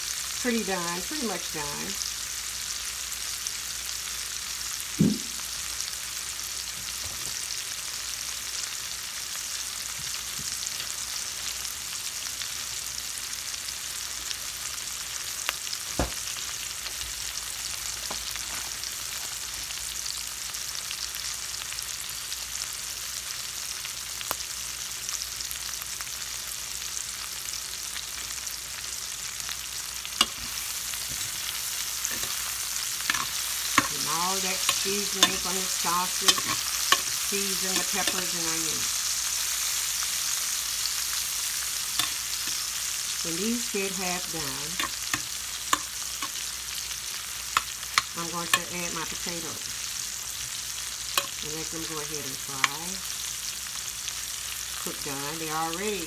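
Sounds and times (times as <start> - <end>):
vegetables sizzling in oil: 0.0 - 56.0.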